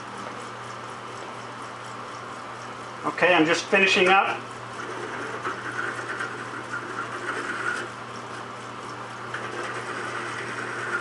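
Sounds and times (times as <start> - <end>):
drill press motor hum: 0.0 - 11.0
metal grinding rasp: 3.3 - 8.5, 9.3 - 11.0.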